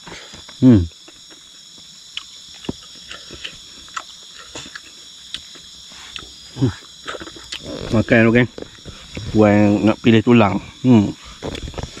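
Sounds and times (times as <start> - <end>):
crickets trilling: 0.0 - 12.0
person murmuring: 0.6 - 0.9
person eating and chewing: 2.1 - 9.4.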